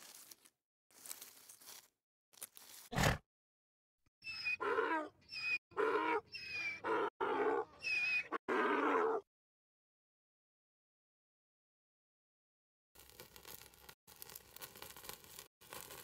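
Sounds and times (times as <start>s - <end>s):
donkey braying: 4.3s - 9.2s.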